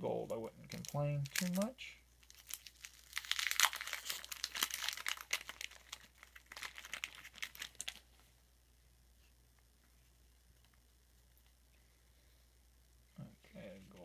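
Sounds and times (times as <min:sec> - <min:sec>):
card pack wrapper crinkling and tearing: 0:00.7 - 0:08.2.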